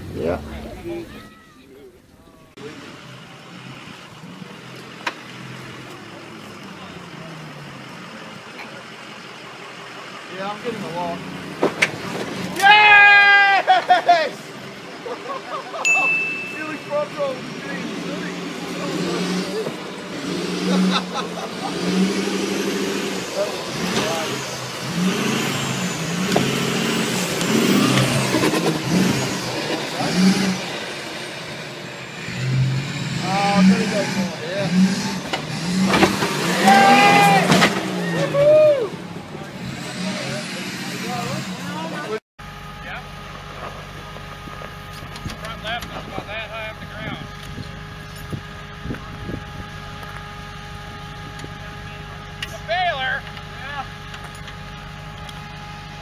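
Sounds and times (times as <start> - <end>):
truck engine revving: 0.0 - 1.2, 2.5 - 56.0
pickup truck engine running: 41.1 - 56.0.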